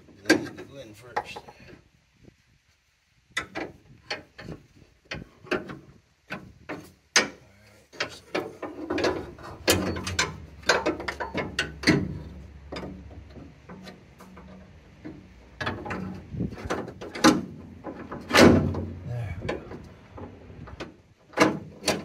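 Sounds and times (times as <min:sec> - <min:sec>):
metal rods clinking and knocking: 0:08.0 - 0:18.8
low hum: 0:09.0 - 0:16.3.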